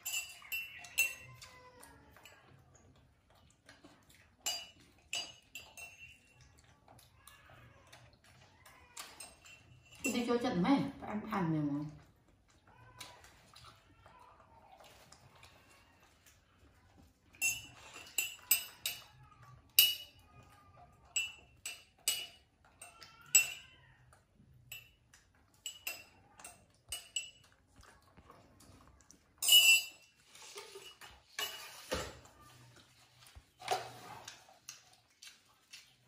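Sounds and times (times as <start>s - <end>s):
tableware clattering: 0.0s - 1.2s, 4.5s - 6.2s, 17.4s - 19.1s, 21.2s - 22.4s, 29.4s - 32.2s
tableware clinking: 0.0s - 1.5s, 4.5s - 6.3s, 17.4s - 19.1s, 19.8s - 20.2s, 21.1s - 23.7s, 25.6s - 27.5s, 29.4s - 32.2s.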